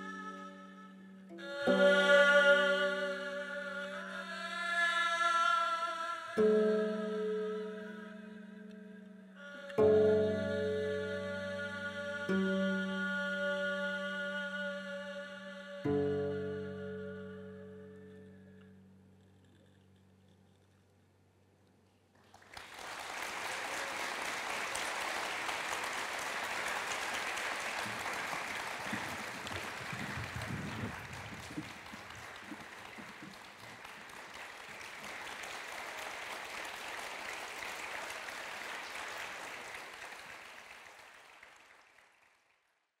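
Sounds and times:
audience applause: 22.2 - 42.7.

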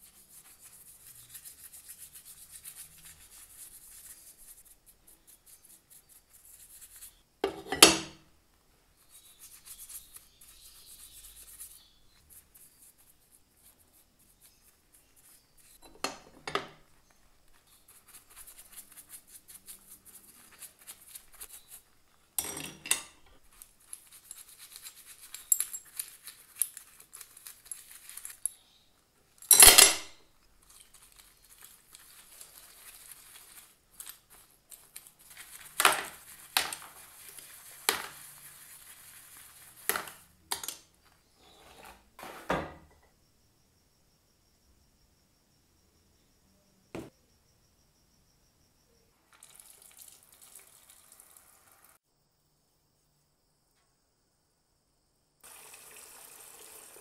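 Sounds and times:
brush scrubbing metal parts: 0.0 - 8.1, 9.0 - 28.6, 30.6 - 42.5.

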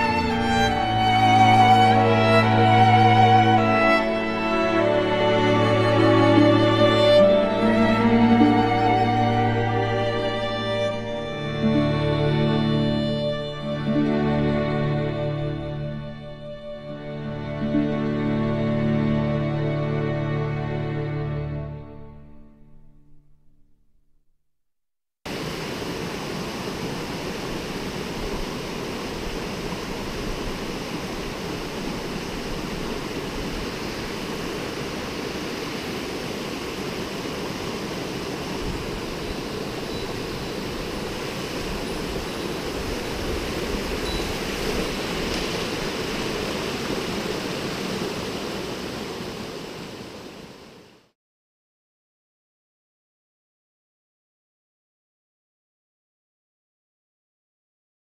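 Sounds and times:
stream rushing over rocks: 0.0 - 15.8, 25.3 - 51.1.

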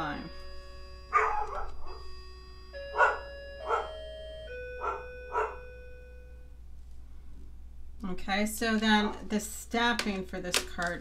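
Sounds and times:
slow electronic notes: 0.0 - 7.4
dog barking: 1.1 - 2.0, 2.9 - 4.0, 4.8 - 5.7.

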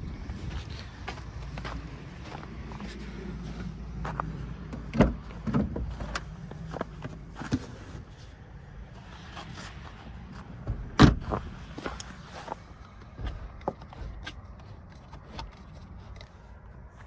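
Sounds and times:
car door clunking: 4.6 - 6.5, 10.6 - 11.9.

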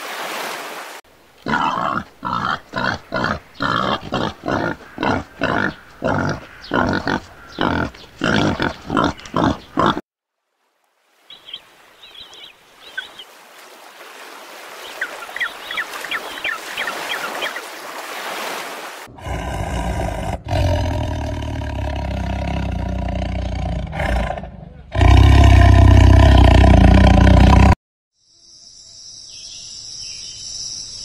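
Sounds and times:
tiger growling low: 1.4 - 10.0, 19.1 - 27.8
wild boar grunting: 1.4 - 10.0, 19.1 - 27.8.

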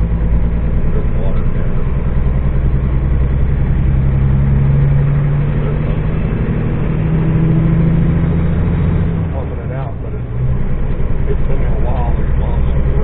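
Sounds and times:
truck engine from inside cab: 0.0 - 13.0.

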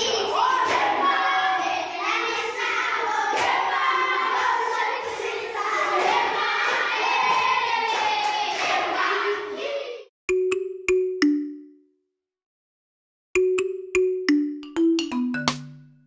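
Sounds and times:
children singing together: 0.0 - 10.1.

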